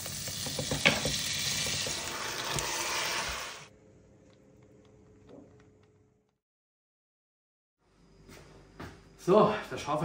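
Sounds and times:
butter sizzling in a frying pan: 0:00.0 - 0:03.6.

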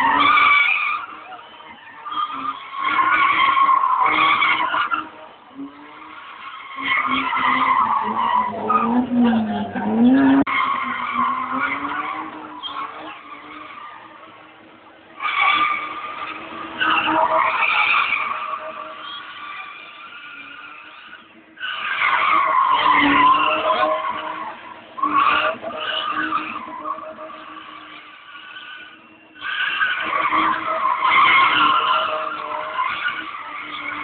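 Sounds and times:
car engine: 0:00.0 - 0:34.0
tyres squealing: 0:15.2 - 0:34.0.

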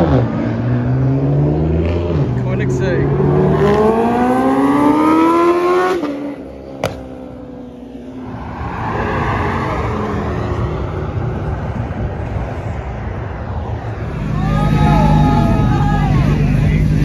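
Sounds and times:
car engine accelerating hard: 0:00.0 - 0:07.6
car passing by: 0:00.0 - 0:16.4.

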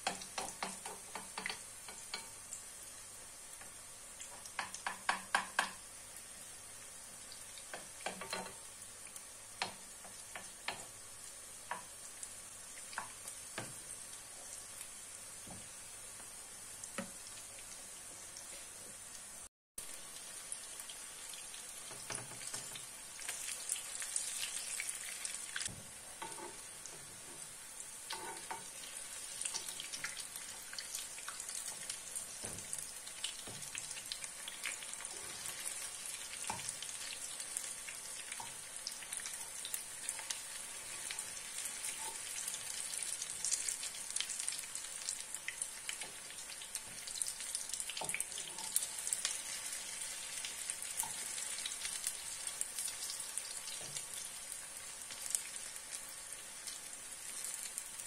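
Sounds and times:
patties sizzling in hot oil: 0:00.0 - 0:58.0
spatula knocks on pan: 0:04.6 - 0:05.8.

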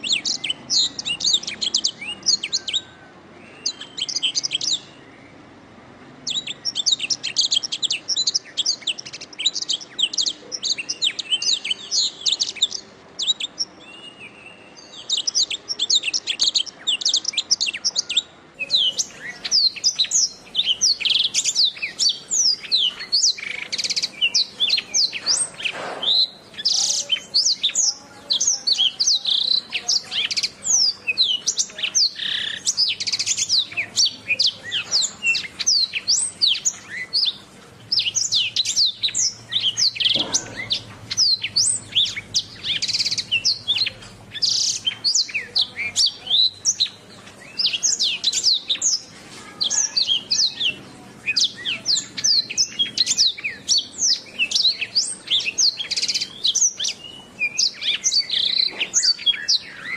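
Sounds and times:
canary singing: 0:00.0 - 0:59.9.

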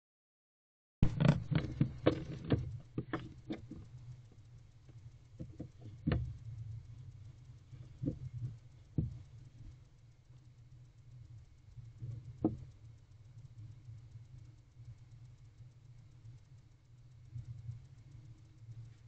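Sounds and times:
owl knocking inside wooden box: 0:01.0 - 0:03.8
steady low hum: 0:01.0 - 0:19.0.

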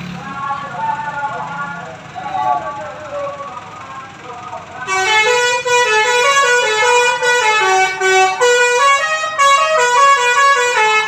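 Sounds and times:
musical air horn tune: 0:04.9 - 0:11.0.

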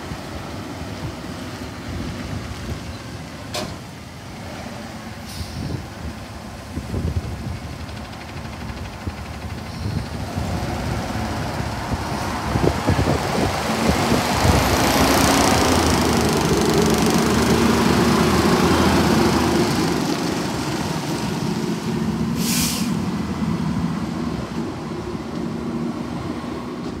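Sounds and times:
garbage truck engine passing: 0:10.2 - 0:22.4
air hiss: 0:22.3 - 0:23.1.

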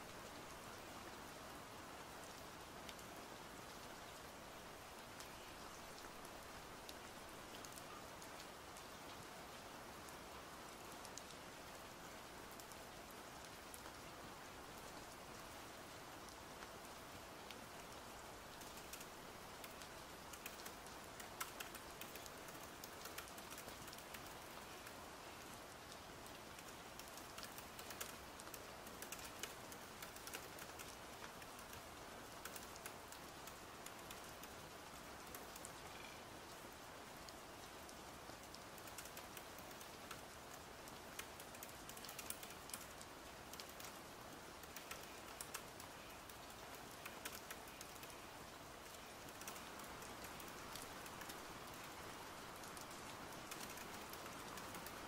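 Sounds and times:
faint steady rain: 0:00.0 - 0:55.0
laptop keyboard typing: 0:20.3 - 0:24.3.

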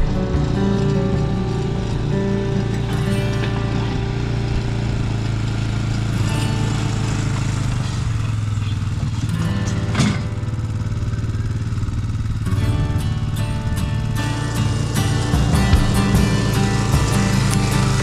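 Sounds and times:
music with steady beat: 0:00.0 - 0:05.3, 0:12.5 - 0:18.0
atv engine running: 0:00.0 - 0:18.0.

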